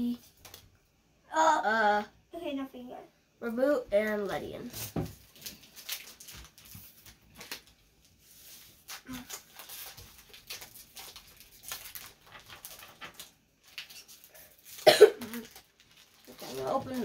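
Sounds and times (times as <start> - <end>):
trading cards and wrappers rustling: 0.0 - 0.7, 4.6 - 17.0.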